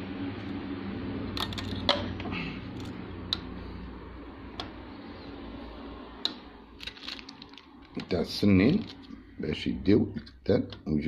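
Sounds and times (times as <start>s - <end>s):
low hum: 0.0s - 9.9s.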